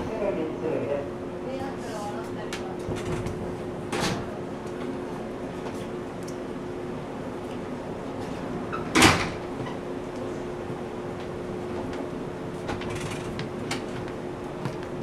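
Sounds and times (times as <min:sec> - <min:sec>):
train car hum: 0:00.0 - 0:15.0.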